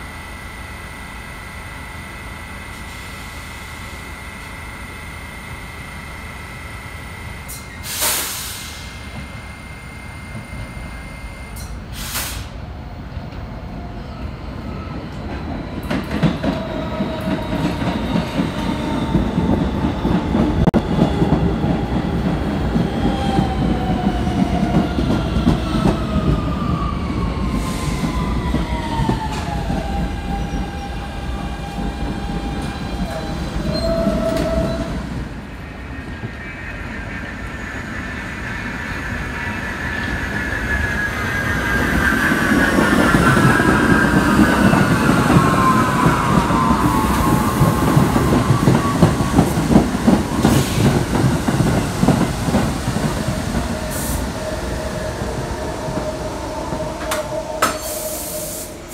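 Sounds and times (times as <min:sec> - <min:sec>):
subway train rumble: 0:00.0 - 0:58.9
train wheels squealing: 0:22.8 - 0:58.9.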